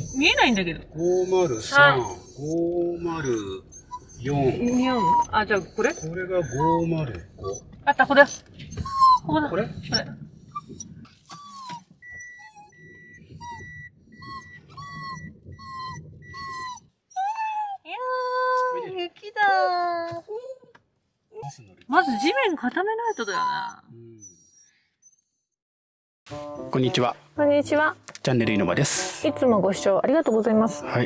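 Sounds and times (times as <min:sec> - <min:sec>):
dog whining: 0:00.0 - 0:19.0, 0:21.3 - 0:25.6.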